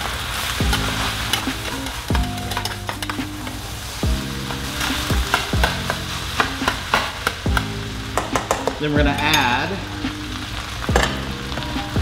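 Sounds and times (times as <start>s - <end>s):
rice sizzling in oil: 0.0s - 12.0s
metal spatula scraping a pan: 0.5s - 7.4s.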